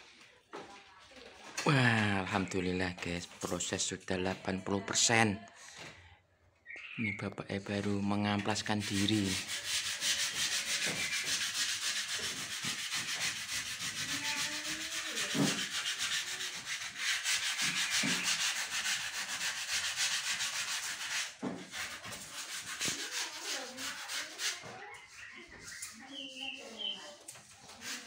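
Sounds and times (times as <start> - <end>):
sandpaper rubbing by hand: 8.3 - 28.0.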